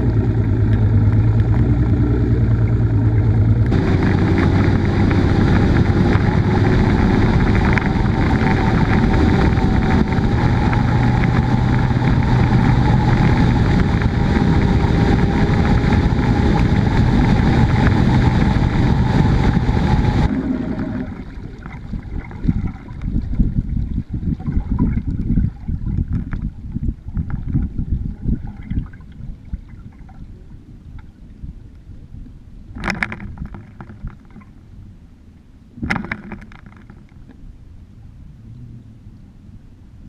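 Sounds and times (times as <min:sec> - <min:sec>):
outboard motor running: 0:00.0 - 0:28.5
wind gusts on microphone: 0:00.0 - 0:34.4
wind and spray noise: 0:00.0 - 0:34.5
water lapping at hull: 0:00.0 - 0:37.5.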